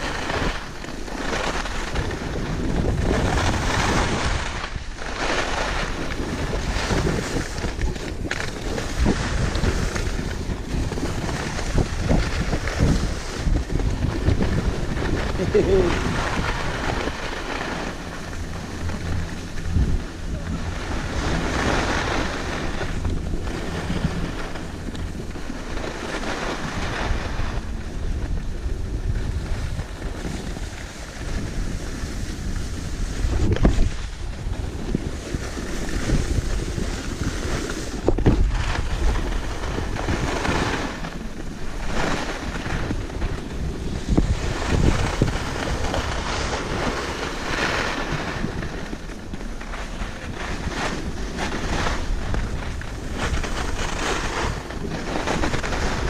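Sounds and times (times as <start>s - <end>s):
skis scraping over snow: 0.0s - 56.0s
wind rushing over microphone: 0.0s - 56.0s.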